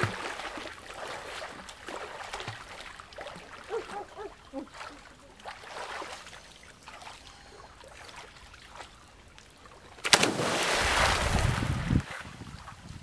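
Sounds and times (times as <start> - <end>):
loud splash in river: 0.0 - 2.6, 10.0 - 12.0
churning thrashing water: 0.0 - 8.9, 10.0 - 12.0.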